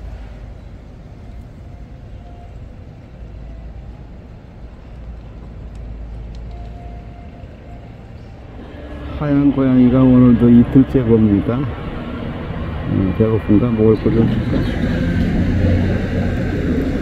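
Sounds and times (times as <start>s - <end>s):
low outdoor rumble: 0.0s - 17.0s
faint ticks: 4.8s - 7.3s.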